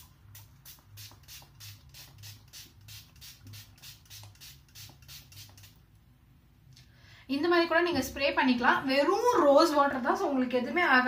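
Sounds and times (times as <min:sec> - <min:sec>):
spray bottle hissing sprays: 0:00.0 - 0:05.8.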